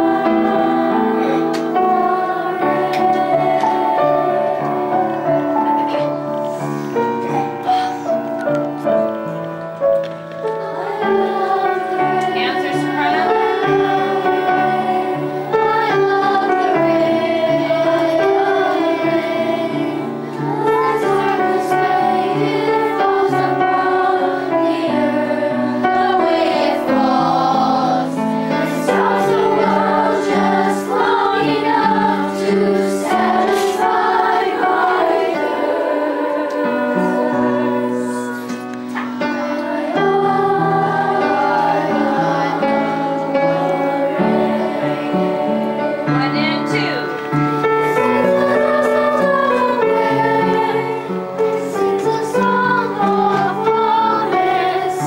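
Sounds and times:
children's choir singing: 0:00.0 - 0:55.0.

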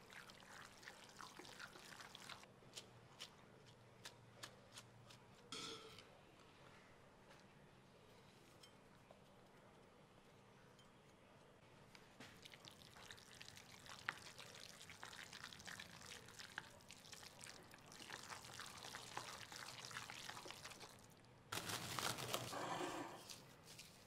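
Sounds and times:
chopsticks stirring wet filling: 0:00.0 - 0:05.5, 0:12.4 - 0:21.1, 0:23.2 - 0:24.0.

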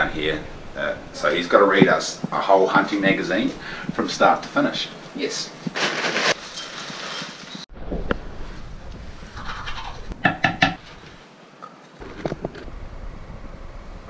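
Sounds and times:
cornflakes poured into bowl: 0:05.8 - 0:07.6.

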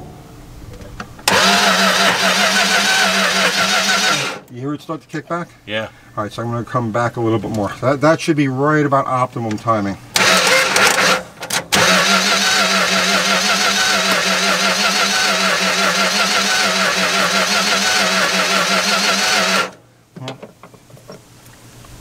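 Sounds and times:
engine running steadily: 0:01.2 - 0:04.5, 0:11.8 - 0:19.8.

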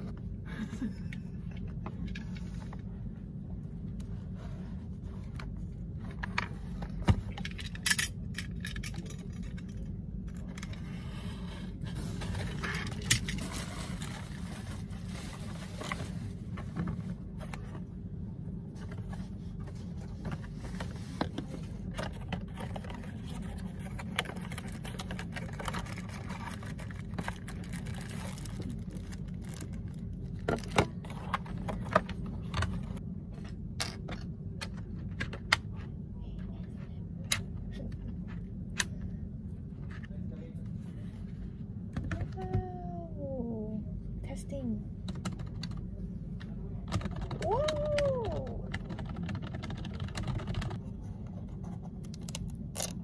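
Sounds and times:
steady low hum: 0:00.0 - 0:53.0
plastic wrapping crinkling: 0:24.3 - 0:30.8.

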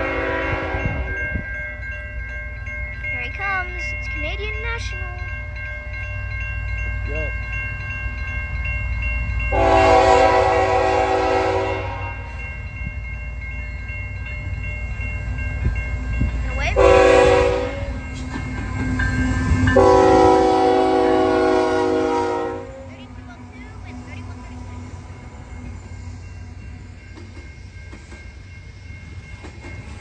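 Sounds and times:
locomotive air horn: 0:00.0 - 0:01.1, 0:09.5 - 0:12.4, 0:16.8 - 0:18.0, 0:19.8 - 0:22.9
crossing bell ringing: 0:00.0 - 0:30.0
train rumbling: 0:00.0 - 0:30.0.

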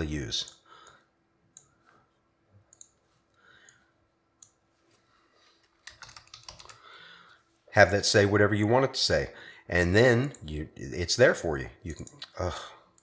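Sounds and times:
computer mouse clicks: 0:00.4 - 0:01.7, 0:02.7 - 0:03.0
keyboard keystrokes: 0:05.8 - 0:06.8.

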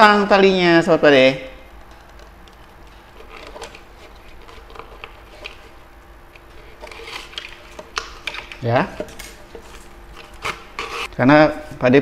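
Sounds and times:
ribbon rustling: 0:01.8 - 0:11.1.

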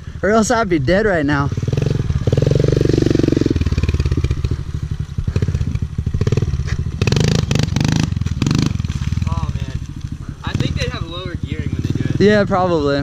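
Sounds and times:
small motorbike engine revving: 0:01.5 - 0:12.7.

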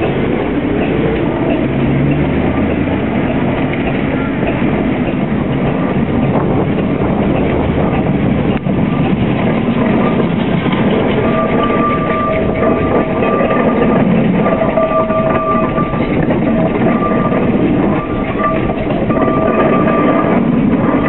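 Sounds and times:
steam engine clatter: 0:00.0 - 0:21.0
high steady tone: 0:10.8 - 0:21.0.

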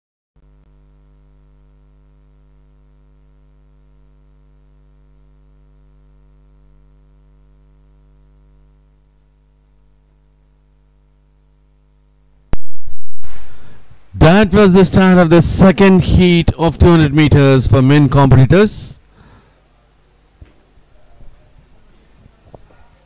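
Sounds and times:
electrical mains hum: 0:00.4 - 0:23.0
faint hiss: 0:13.2 - 0:14.2.

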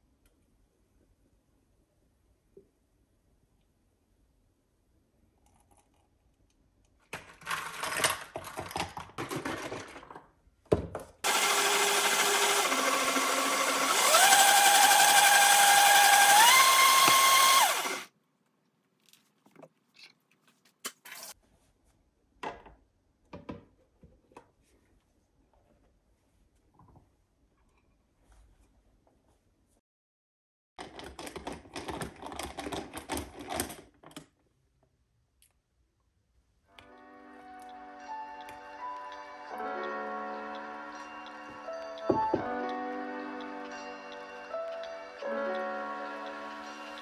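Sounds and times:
electric motor whining: 0:11.3 - 0:18.1, 0:42.5 - 0:47.0.

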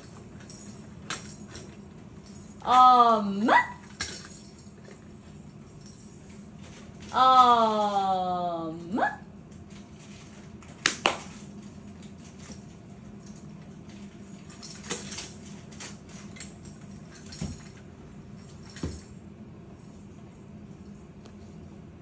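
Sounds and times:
faint steady hum: 0:00.0 - 0:22.0
plastic toys clacking and rattling: 0:13.2 - 0:17.8.

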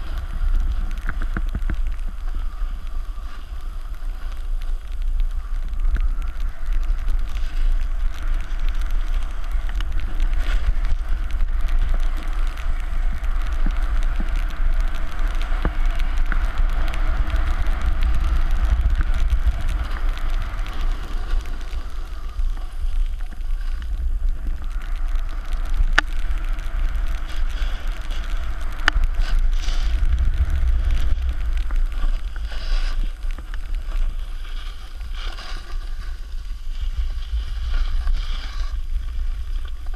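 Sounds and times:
wind rumbling on microphone: 0:00.0 - 0:39.9
snowboard scraping on snow: 0:26.5 - 0:39.9.

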